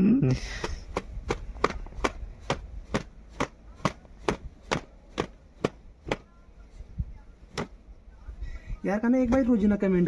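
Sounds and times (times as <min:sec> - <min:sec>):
kitchen tool chopping food: 0:00.6 - 0:06.2.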